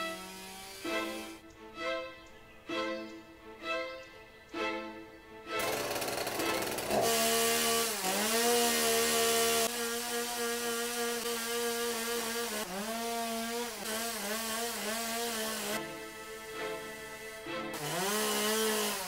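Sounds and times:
chainsaw carving wood: 0:00.0 - 0:01.4, 0:05.6 - 0:19.0.

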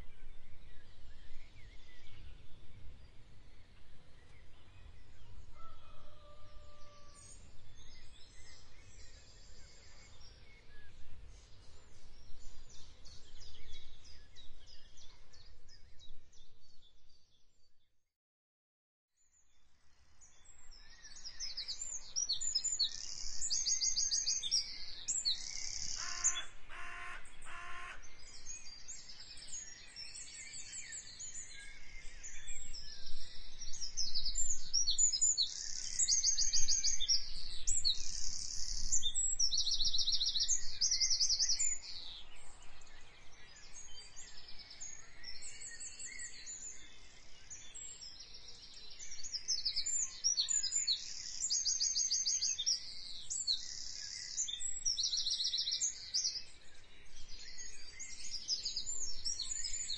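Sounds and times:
birds chirping and trilling: 0:20.2 - 0:59.9
short low bird calls: 0:25.8 - 0:28.1.

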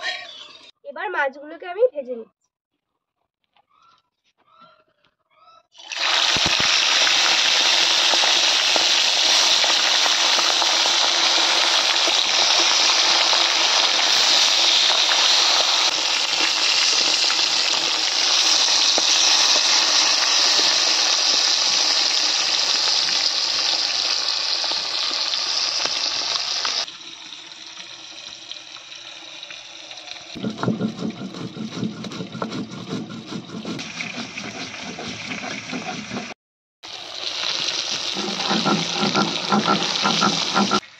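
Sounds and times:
fish sizzling in hot oil: 0:05.8 - 0:30.4, 0:36.8 - 0:40.9
stone roller grinding spices: 0:30.4 - 0:36.4, 0:38.1 - 0:40.9.

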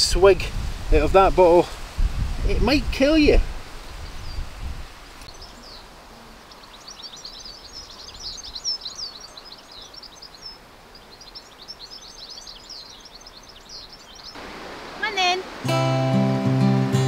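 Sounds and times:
small birds chirping: 0:02.6 - 0:15.4.

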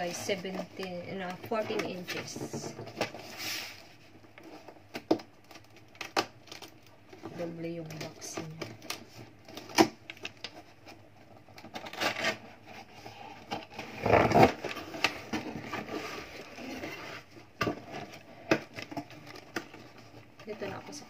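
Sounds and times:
cardboard scraping and rubbing: 0:00.0 - 0:04.8, 0:11.8 - 0:21.0.

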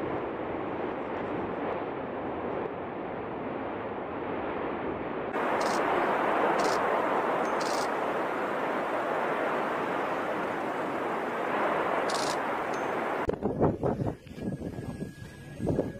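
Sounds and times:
steady rushing noise: 0:00.0 - 0:14.0
volcano erupting: 0:05.4 - 0:13.3.

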